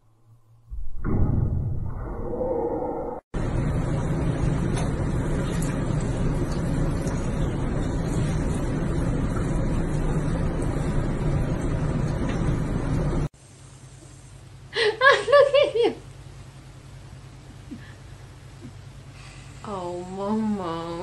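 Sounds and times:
person laughing: 14.8 - 16.0.

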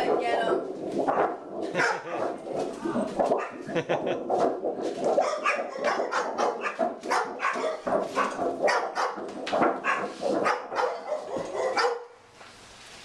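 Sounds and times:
dog barking rapidly: 0.0 - 2.6, 3.2 - 3.6, 5.0 - 12.1.

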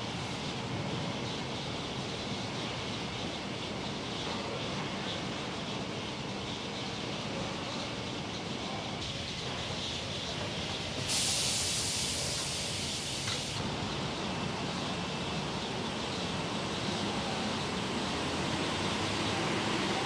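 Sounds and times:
compressed air hiss: 11.0 - 13.6.

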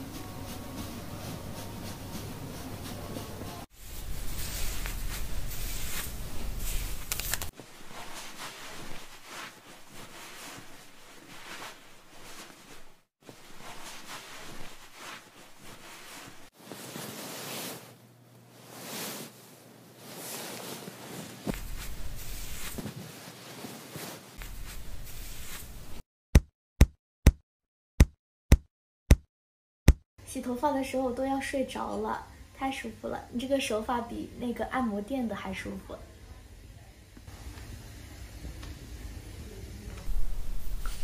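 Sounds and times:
towel rubbing wet hair: 0.0 - 26.0.

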